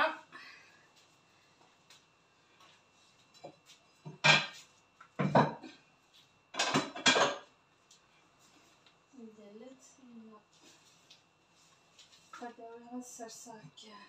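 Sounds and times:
dishes and utensils clattering: 4.1s - 4.6s, 5.2s - 5.8s, 6.6s - 7.5s.

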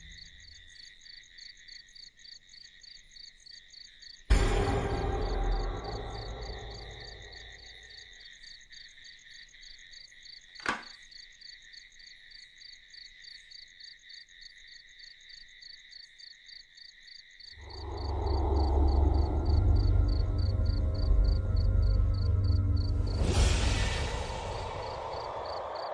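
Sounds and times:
crickets chirping: 0.0s - 25.9s
sharp knock: 4.3s - 7.6s, 10.6s - 11.0s
low boom: 4.3s - 7.8s, 17.6s - 25.9s
low rumbling music swell: 4.3s - 7.8s, 17.6s - 25.9s.

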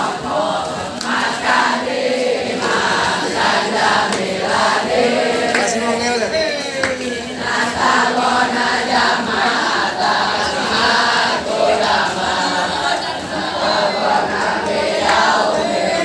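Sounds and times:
crowd chanting a cheer: 0.0s - 16.0s
hand clapping: 0.8s - 1.9s, 2.6s - 8.8s, 10.7s - 16.0s.

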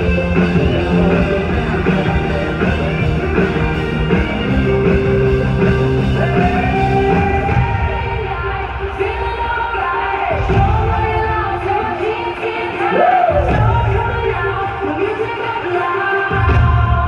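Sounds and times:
electric guitar lead: 0.0s - 8.0s
live rock band playing: 0.0s - 9.6s.

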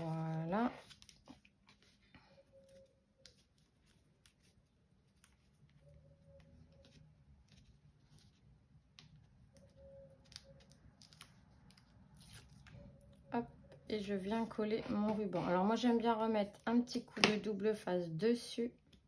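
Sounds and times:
hands handling tape and card: 0.0s - 13.1s.

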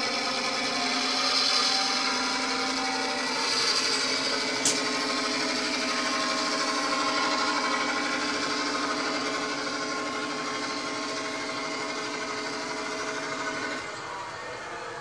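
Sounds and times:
diesel engine sound from speaker: 0.0s - 15.0s
model train drive whine: 0.0s - 15.0s
sharp click: 4.6s - 4.9s.

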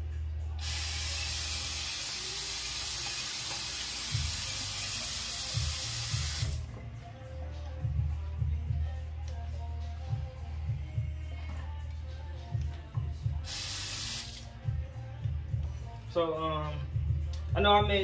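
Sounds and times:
sink tap running: 0.6s - 6.6s
music with thumping bass: 4.1s - 13.6s, 14.4s - 18.0s.

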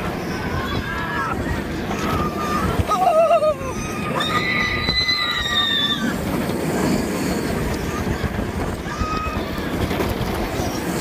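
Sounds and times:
roller coaster wheels roaring on track: 0.0s - 11.0s
rushing wind: 0.0s - 11.0s
riders screaming: 0.1s - 6.4s, 7.6s - 10.1s.

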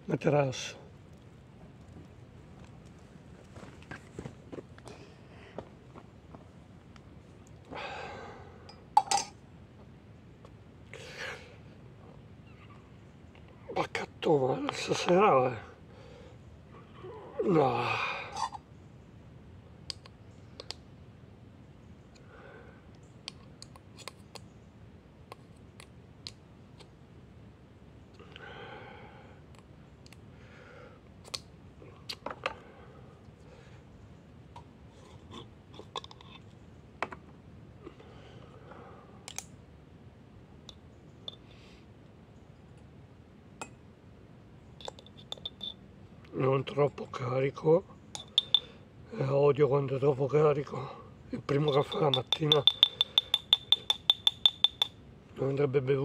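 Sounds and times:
spoon and jar clinking: 44.8s - 45.8s, 48.2s - 48.7s, 51.5s - 55.0s.

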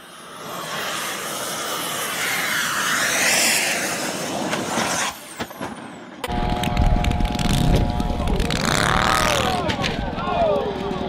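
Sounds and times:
model airplane engine passing: 0.0s - 5.2s, 6.3s - 10.0s.

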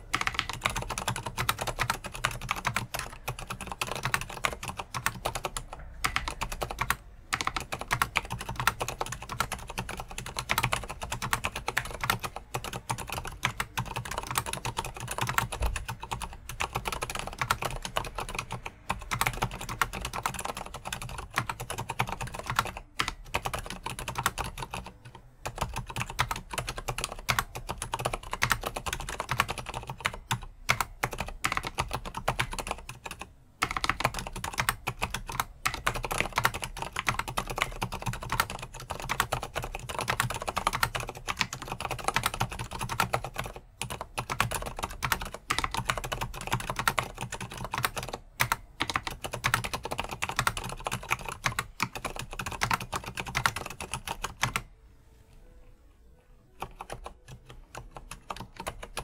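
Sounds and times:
fast typing on keyboard: 0.0s - 54.7s, 56.6s - 59.0s.

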